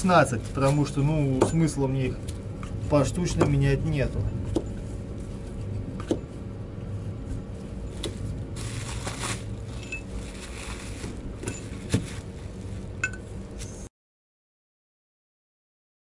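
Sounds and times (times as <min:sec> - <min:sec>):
low steady hum: 0:00.0 - 0:13.9.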